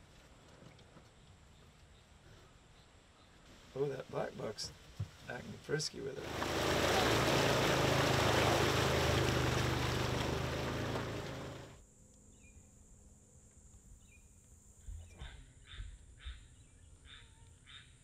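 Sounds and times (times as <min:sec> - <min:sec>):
faint outdoor ambience: 0:00.0 - 0:18.0
off-road vehicle engine: 0:06.2 - 0:11.8
water splashing: 0:06.2 - 0:11.8.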